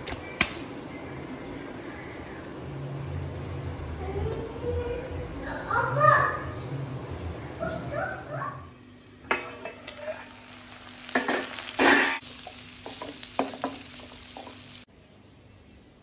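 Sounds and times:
food sizzling: 8.7s - 14.9s
spatula scraping frying pan: 11.1s - 14.6s.

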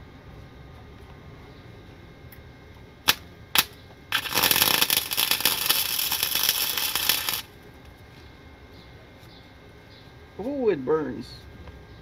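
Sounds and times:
welding arc crackling: 3.0s - 7.6s.

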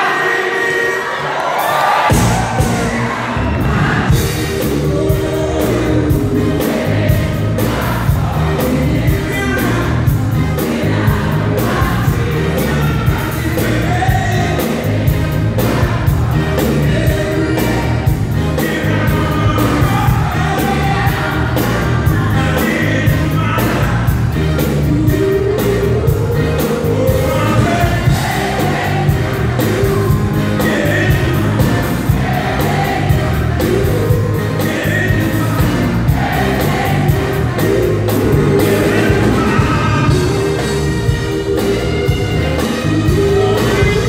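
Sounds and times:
live band playing: 0.0s - 44.0s
voices singing along: 0.0s - 44.0s
man singing lead: 4.2s - 7.2s, 8.2s - 15.2s, 16.3s - 31.8s, 33.4s - 36.0s, 37.2s - 44.0s.

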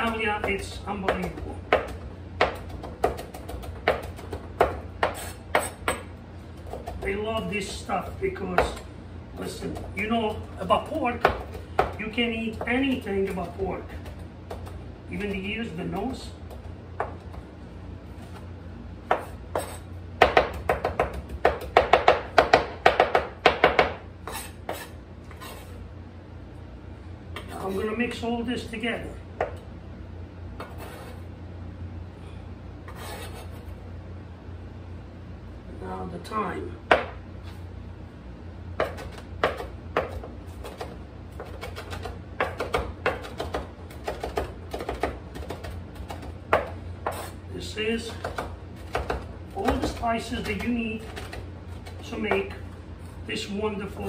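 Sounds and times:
knife chopping on cutting board: 0.0s - 7.1s, 11.2s - 14.8s, 19.1s - 25.7s, 36.9s - 37.2s, 38.8s - 47.4s, 48.1s - 52.5s.

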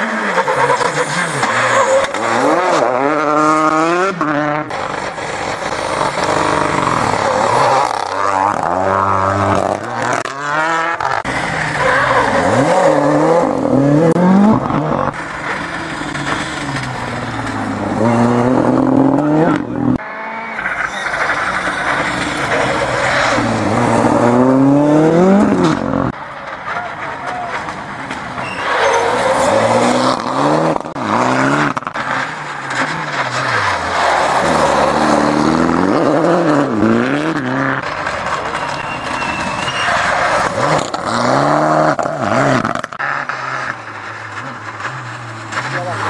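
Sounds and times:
rally car engines revving: 0.0s - 46.0s
tyres scrabbling on gravel: 36.5s - 46.0s.

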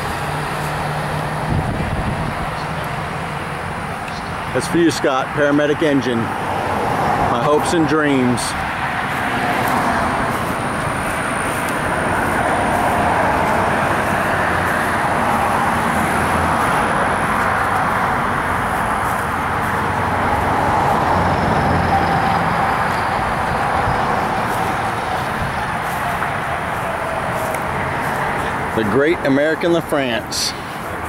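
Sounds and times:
fire engine idling: 0.0s - 4.7s, 7.6s - 21.0s, 22.0s - 31.0s
broad rushing noise: 0.0s - 31.0s.

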